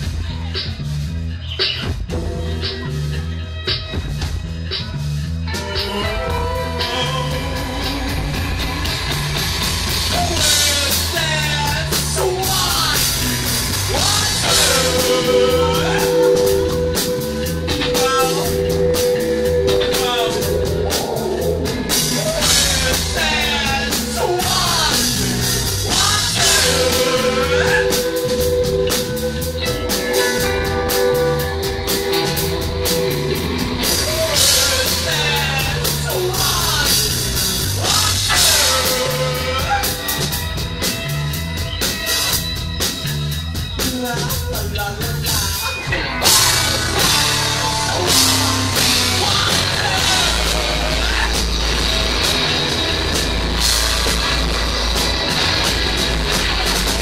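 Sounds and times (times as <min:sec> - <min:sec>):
bass guitar: 0:00.0 - 0:57.0
drum kit: 0:00.0 - 0:57.0
person singing: 0:05.5 - 0:09.0, 0:10.1 - 0:40.6, 0:43.8 - 0:52.7
electric guitar: 0:05.5 - 0:57.0.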